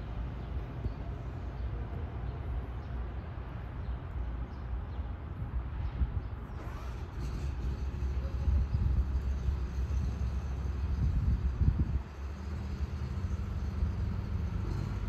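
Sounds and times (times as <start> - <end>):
train wheels rumbling on rail: 5.9 - 15.0.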